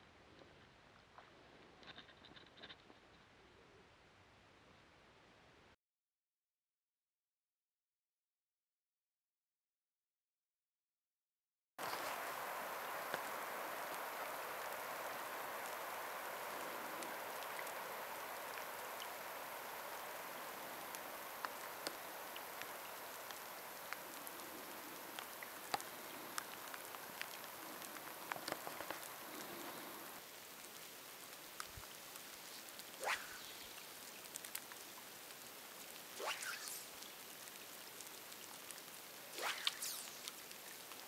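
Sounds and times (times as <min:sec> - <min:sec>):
light rain pattering: 0:11.8 - 0:41.0.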